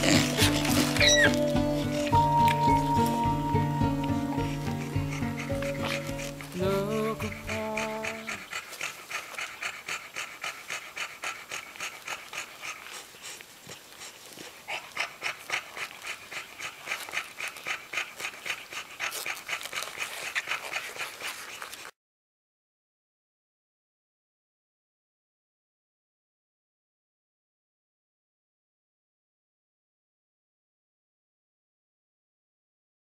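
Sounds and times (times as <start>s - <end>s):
background music: 0.0s - 8.4s
dog panting rapidly: 0.0s - 22.0s.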